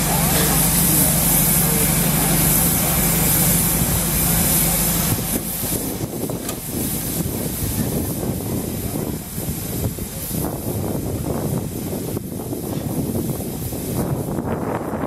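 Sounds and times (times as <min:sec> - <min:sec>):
steam hissing loudly: 0:00.0 - 0:15.0.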